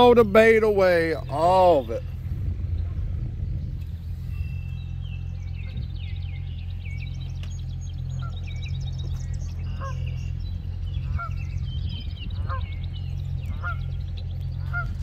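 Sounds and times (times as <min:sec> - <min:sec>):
small birds chattering: 0:00.0 - 0:15.0
steady low hum: 0:00.0 - 0:15.0
geese honking: 0:08.1 - 0:08.6, 0:09.6 - 0:10.2, 0:11.0 - 0:11.5, 0:12.3 - 0:15.0.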